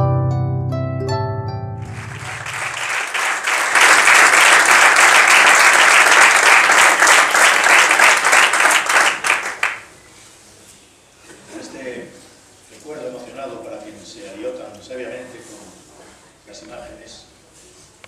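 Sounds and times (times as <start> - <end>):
plucked string notes: 0.0 - 2.2
audience applauding: 1.8 - 9.9.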